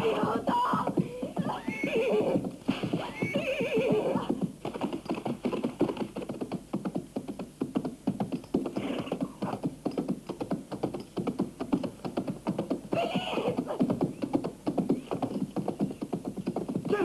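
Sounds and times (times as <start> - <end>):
horse whinnying: 0.0 - 4.3, 8.7 - 9.5, 12.9 - 13.8
galloping hoofbeats: 0.0 - 17.0.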